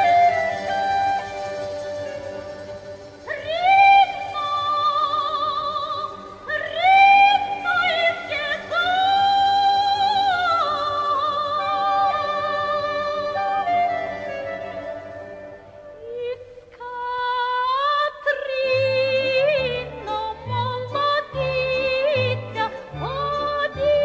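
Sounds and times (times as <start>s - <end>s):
woman singing with vibrato: 0.0s - 24.0s.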